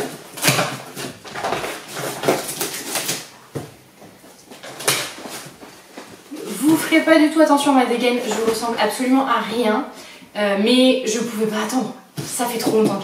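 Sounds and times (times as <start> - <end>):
cardboard rustling: 0.0 - 7.0.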